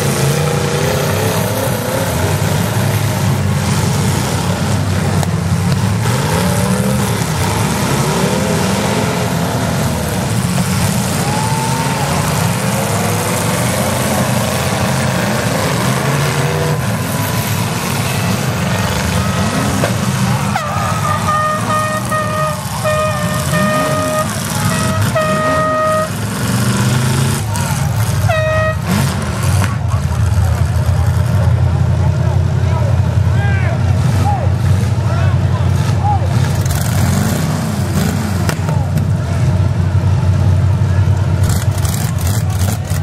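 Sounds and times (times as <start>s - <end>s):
car engines revving: 0.0s - 43.0s
horn blasts: 20.4s - 26.4s, 28.2s - 29.1s.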